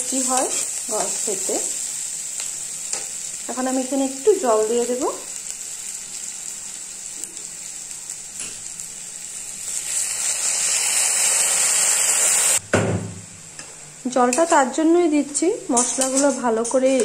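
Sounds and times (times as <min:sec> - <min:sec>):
onions sizzling in oil: 0:00.0 - 0:12.6.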